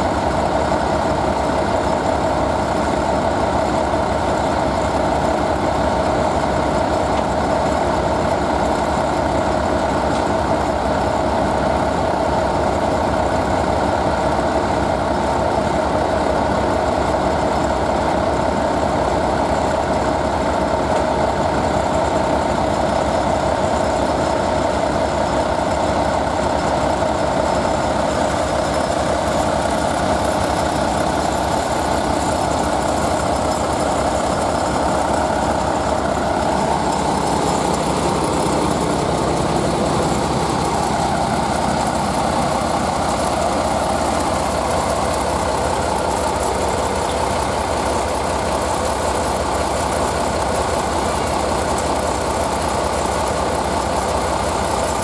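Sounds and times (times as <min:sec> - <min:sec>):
diesel locomotive engine drone: 0:00.0 - 0:55.0.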